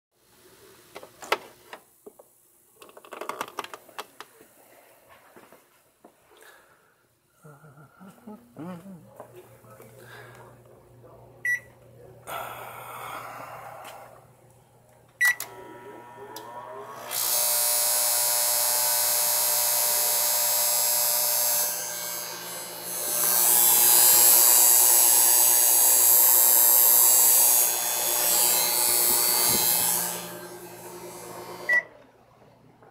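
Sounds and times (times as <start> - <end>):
microwave keypad beeps: 11.4 - 11.7, 15.2 - 15.4
harsh electrical buzz: 15.3 - 31.9.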